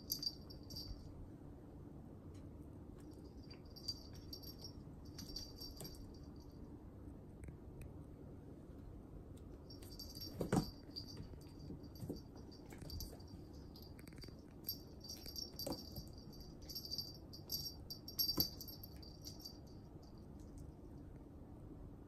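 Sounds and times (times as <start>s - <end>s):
collar bell jingling: 0.0s - 1.1s, 3.1s - 6.6s, 9.7s - 20.5s.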